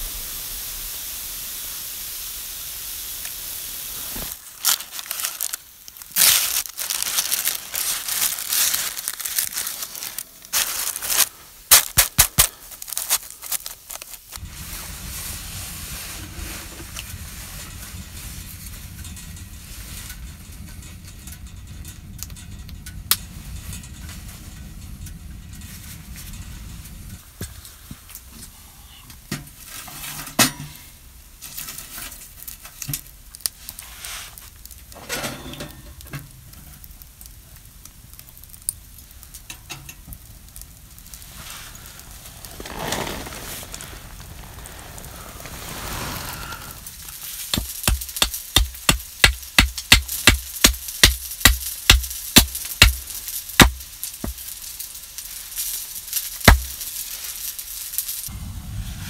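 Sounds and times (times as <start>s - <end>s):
steady hiss: 0.0s - 59.0s
parchment paper crinkling: 4.1s - 14.4s
low steady rumble: 13.7s - 29.8s, 35.6s - 54.8s, 58.2s - 59.0s.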